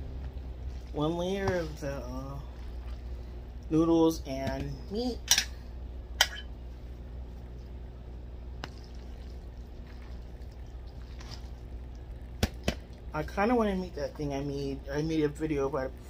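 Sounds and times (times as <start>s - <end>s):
steady low hum: 0.0s - 16.0s
wet sloppy food scooping: 0.2s - 3.5s, 6.6s - 13.2s.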